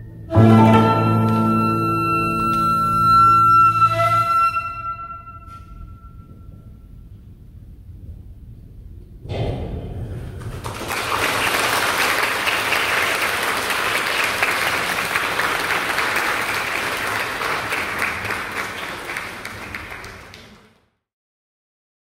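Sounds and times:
audience applauding: 10.4s - 20.8s.

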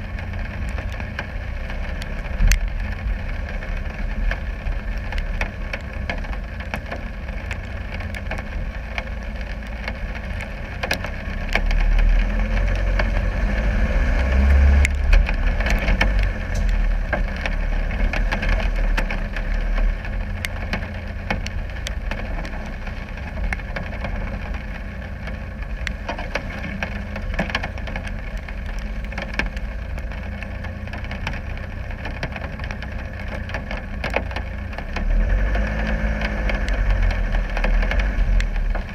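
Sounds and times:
diesel engine rumbling: 0.0s - 38.9s
sharp knocks and clicks: 5.0s - 13.2s, 14.8s - 22.6s, 25.2s - 35.1s.

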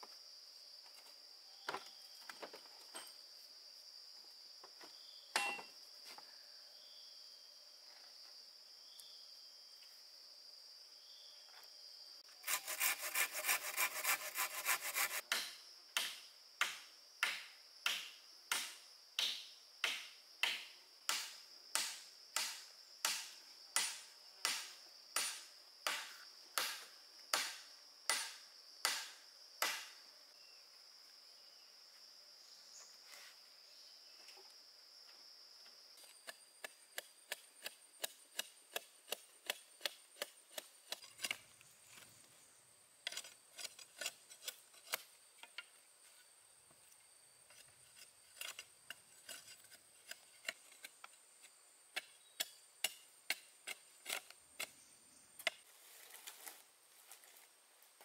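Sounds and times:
insects droning: 0.0s - 58.0s
chopping strikes on wood: 15.2s - 30.0s.

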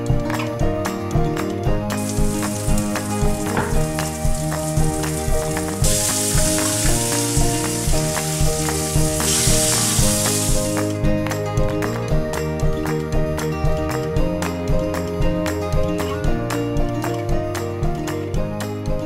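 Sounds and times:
background music with steady beat: 0.0s - 19.0s
food sizzling in a frying pan: 2.0s - 10.9s.

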